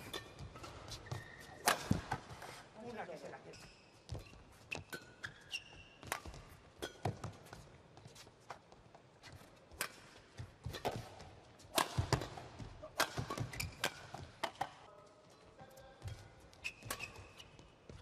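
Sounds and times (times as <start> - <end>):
rackets hitting shuttlecock: 0.0 - 3.1, 4.1 - 7.8, 9.7 - 14.9, 16.0 - 18.0
shoe squeaks: 0.0 - 8.4, 13.2 - 14.3, 16.1 - 18.0.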